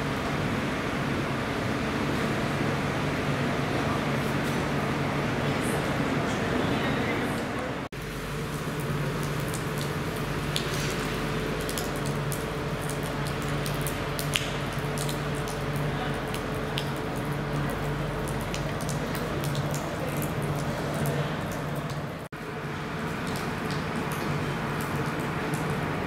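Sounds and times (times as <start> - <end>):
water drops splashing into puddles: 8.0 - 26.0.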